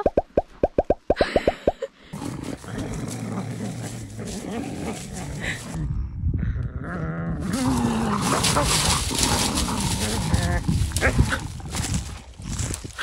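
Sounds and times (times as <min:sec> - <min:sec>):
popping sound effects: 0:00.0 - 0:01.8
dogs growling: 0:02.1 - 0:12.8.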